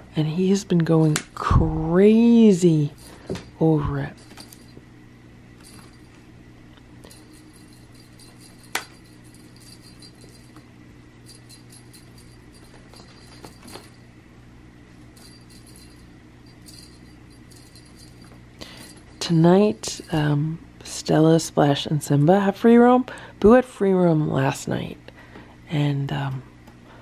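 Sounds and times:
low room hum: 0.0 - 27.0
toy clinks and ticks: 7.0 - 14.0, 15.2 - 20.2.

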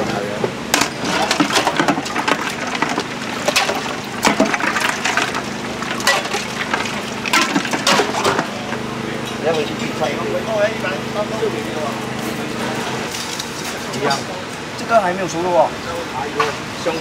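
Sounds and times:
ladle clinking against ice: 0.8 - 8.6
liquid splashing: 0.8 - 8.8.

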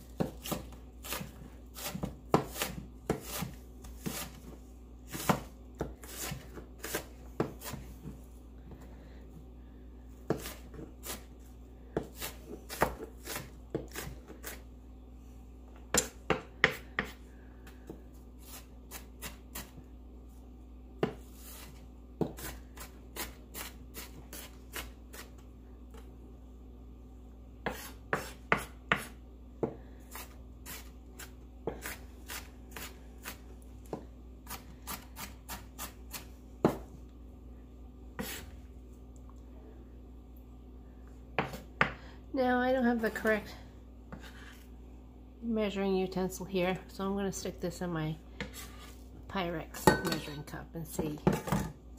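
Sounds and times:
knife chopping on wooden board: 10.3 - 11.2, 15.9 - 17.2, 27.6 - 29.8.

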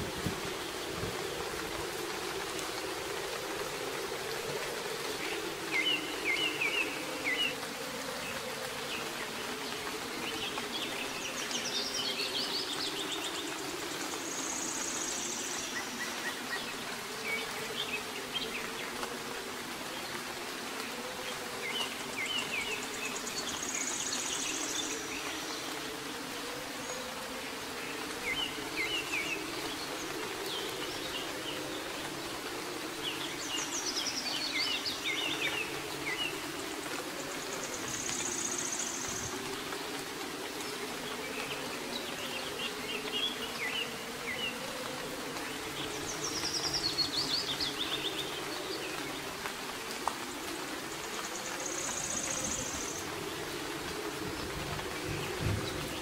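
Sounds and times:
soft rain falling: 0.0 - 56.0
songbirds chirping: 0.0 - 56.0.

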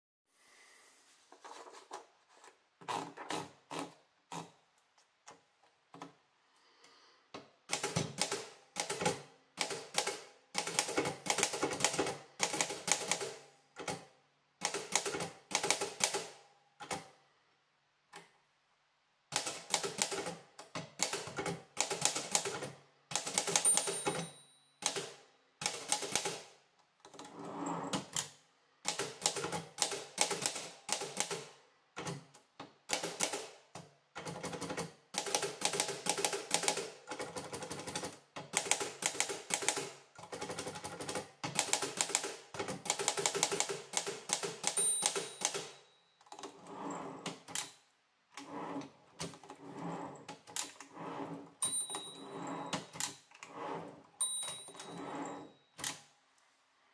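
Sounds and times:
typewriter keys clacking: 19.4 - 26.4, 34.2 - 46.5.

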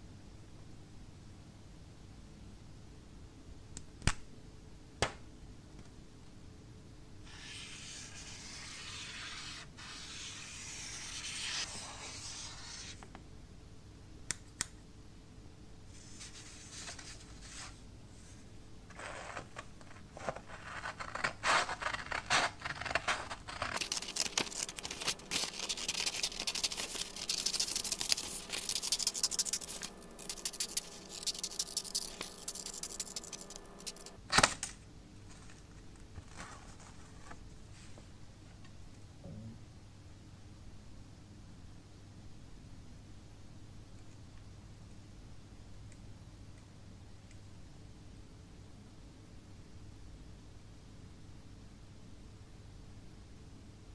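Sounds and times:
marker scratching on sandpaper: 7.3 - 13.0, 20.2 - 34.2
scissors cutting sandpaper: 20.4 - 34.2.

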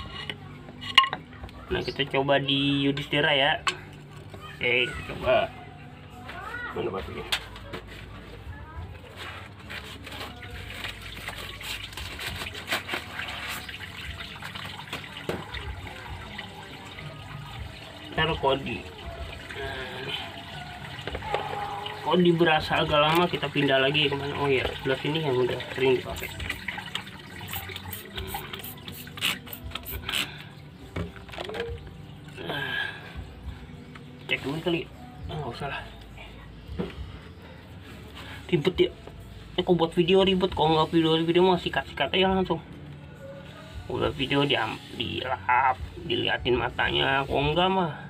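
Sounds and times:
water splashing and trickling: 6.2 - 42.6, 43.2 - 48.0
spray bottle squirting: 26.2 - 30.4.

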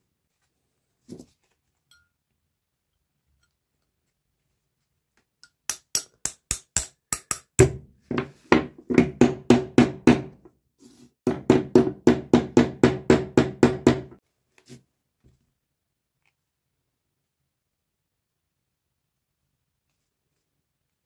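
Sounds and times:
hammer tapping metal pliers: 5.4 - 7.8.

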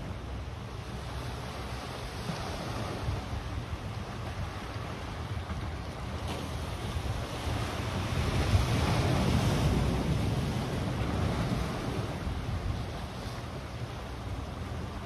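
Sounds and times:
small waves washing on rocks: 4.2 - 13.4.

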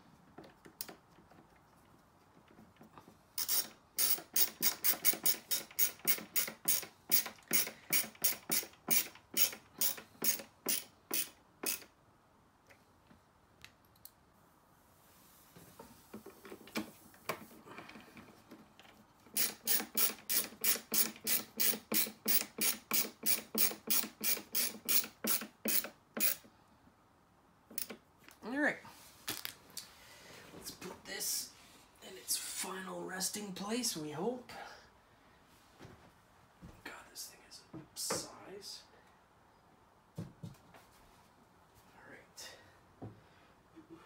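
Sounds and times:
ratcheting screwdriver clicking: 3.4 - 11.9.

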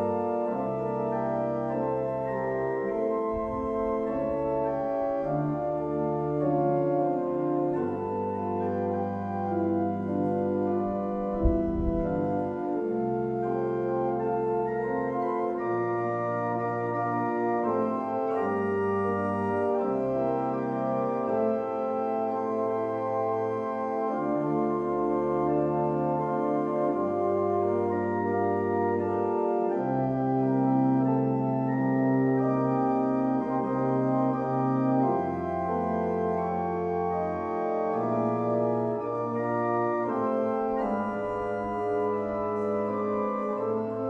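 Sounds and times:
slow organ chords: 0.0 - 44.0
low thump: 3.4 - 4.2, 11.0 - 12.5.

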